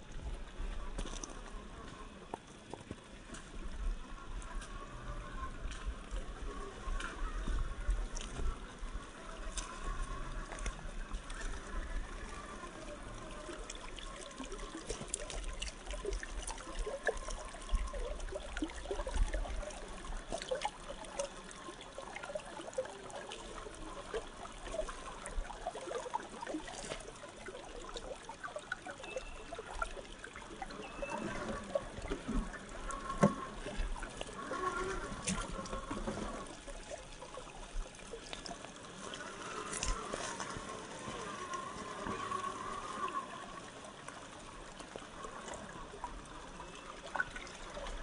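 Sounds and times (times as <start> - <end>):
creek water splashing over rocks: 0.0 - 48.0.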